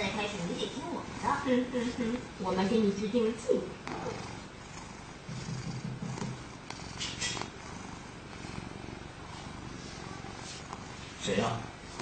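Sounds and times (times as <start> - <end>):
cat purring: 0.0 - 12.0.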